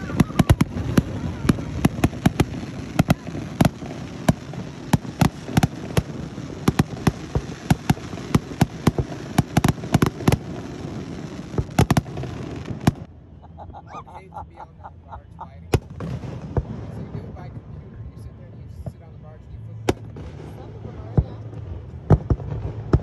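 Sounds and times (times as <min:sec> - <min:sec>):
fireworks bangs and crackles: 0:00.0 - 0:13.1, 0:14.2 - 0:23.0
low rumble: 0:10.1 - 0:23.0.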